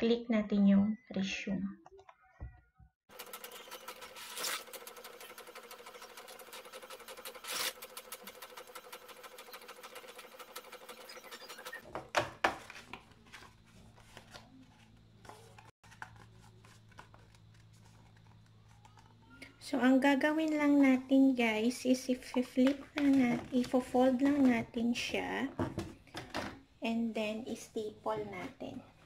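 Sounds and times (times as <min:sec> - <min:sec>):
inkjet printer ticking and whirring: 0:03.1 - 0:11.8.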